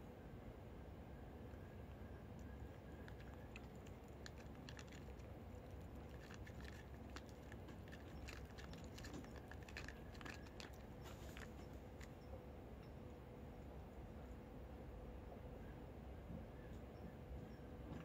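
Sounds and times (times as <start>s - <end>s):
cats crunching dry kibble: 1.8s - 12.2s.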